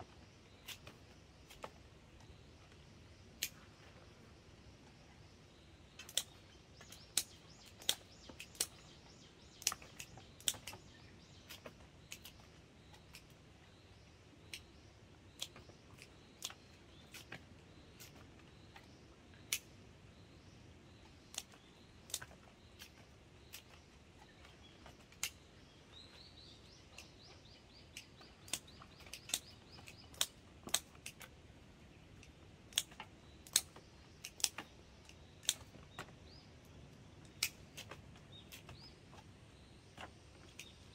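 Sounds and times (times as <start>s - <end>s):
bird chirping: 0.0s - 40.9s
pruning shears snipping: 3.4s - 3.7s, 6.0s - 13.3s, 21.2s - 25.4s, 26.8s - 31.4s, 32.1s - 36.2s, 37.2s - 39.2s, 40.0s - 40.9s.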